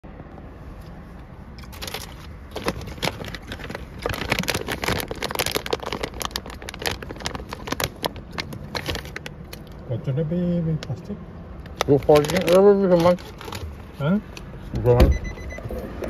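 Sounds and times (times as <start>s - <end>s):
plastic packet crinkling: 1.8s - 9.3s, 11.8s - 13.6s.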